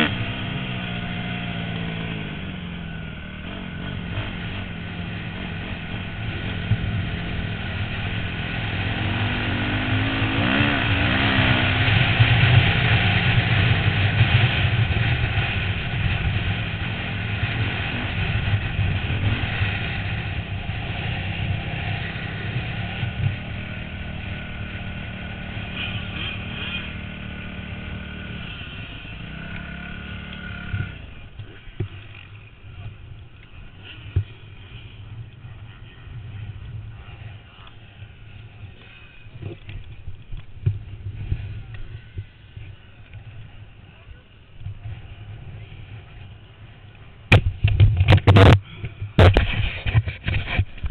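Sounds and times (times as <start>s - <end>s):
dirt bike engine revving: 0.0s - 32.9s.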